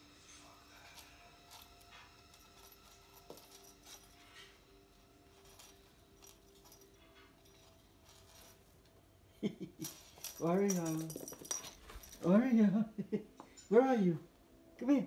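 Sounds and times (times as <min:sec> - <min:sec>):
faint steady hum: 0:00.0 - 0:15.0
toy ball clicking and jingling: 0:05.3 - 0:08.6, 0:09.8 - 0:12.4.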